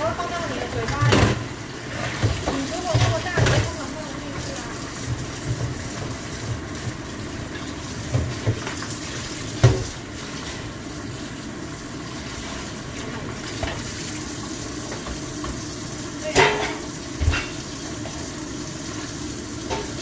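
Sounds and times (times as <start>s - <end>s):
tap water running: 0.0s - 20.0s
sponge scrubbing basket: 1.8s - 11.4s.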